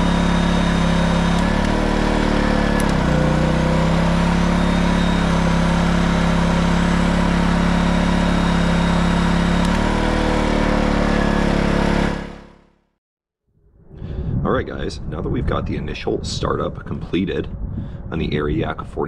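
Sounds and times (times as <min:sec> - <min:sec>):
generator engine running: 0:00.0 - 0:12.9.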